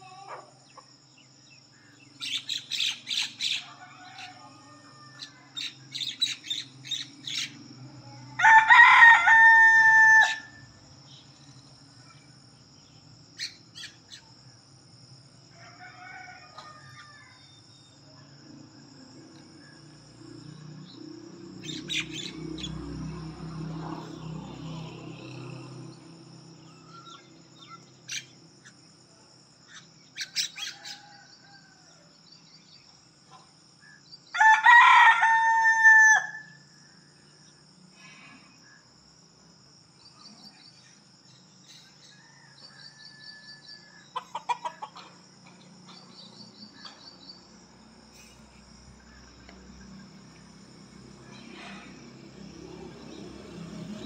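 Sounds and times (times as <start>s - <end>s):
small birds chirping: 0.0s - 4.4s, 5.2s - 8.2s, 11.0s - 14.3s, 20.7s - 22.8s, 26.6s - 28.8s
high insect trill: 0.0s - 54.0s
rooster crowing: 3.5s - 5.7s, 8.3s - 10.7s, 15.5s - 17.7s, 30.6s - 32.2s, 34.3s - 36.8s, 42.0s - 45.0s.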